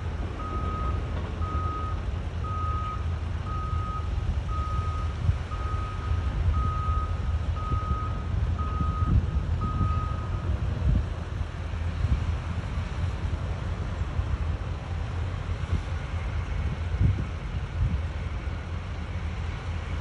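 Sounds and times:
steady low rumble: 0.0s - 20.0s
backup alarm beeping: 0.4s - 10.4s.

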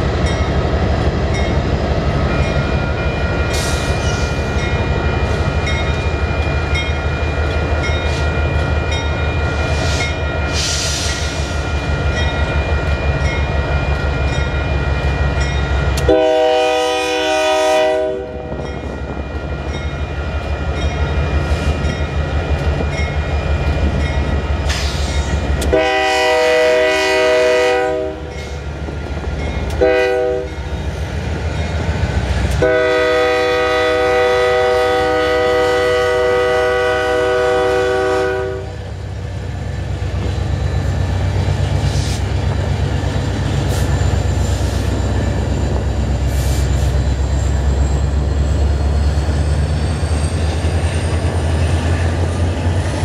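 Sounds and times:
locomotive air horn blasts: 16.0s - 18.6s, 25.7s - 28.4s, 29.8s - 30.6s, 32.6s - 38.8s.

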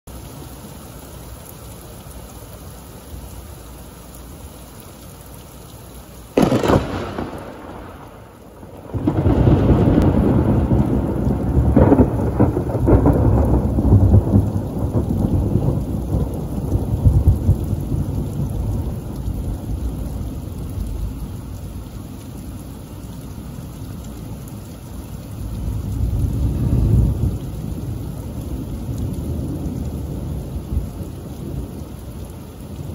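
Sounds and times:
steady rain falling: 0.1s - 32.9s
sharp crack of thunder: 6.4s - 18.9s
low rumble of thunder: 6.4s - 22.0s, 25.2s - 32.9s.

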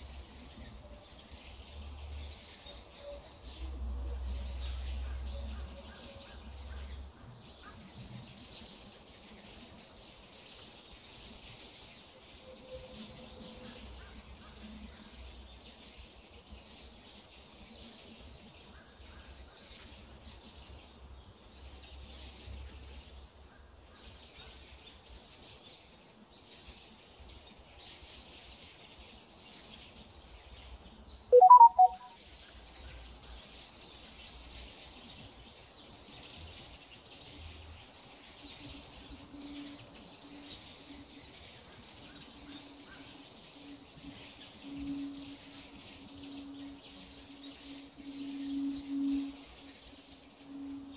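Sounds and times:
high-pitched chirping chorus: 31.3s - 32.1s
loud two-part call: 31.4s - 32.1s.

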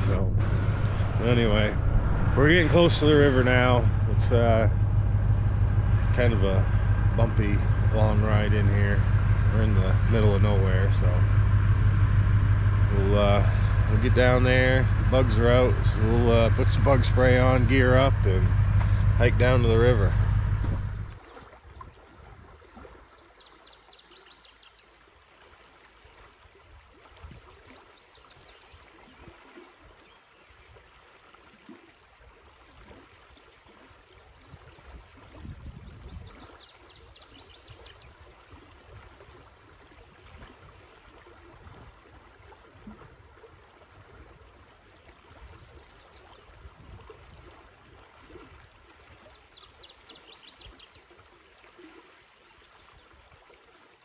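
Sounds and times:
river flowing: 0.0s - 27.9s.

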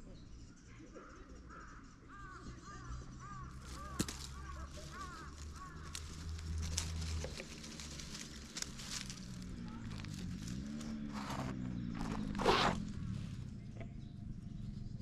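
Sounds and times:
rustling: 3.6s - 13.4s.

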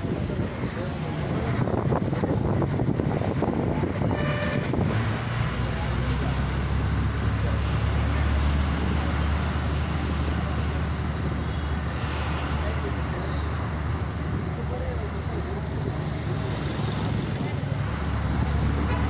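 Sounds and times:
bus engine drone: 0.0s - 19.0s
road noise: 0.0s - 19.0s
horn toot: 4.1s - 4.8s.

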